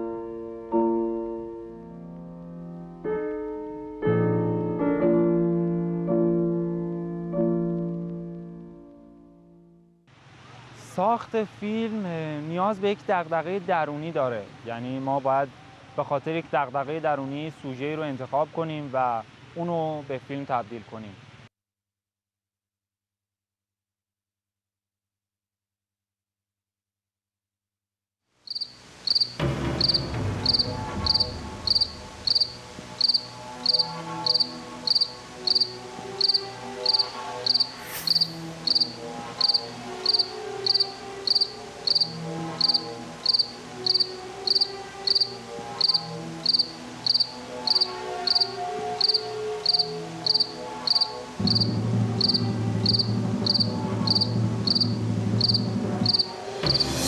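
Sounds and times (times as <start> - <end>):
cricket chirping: 28.5 - 57.0.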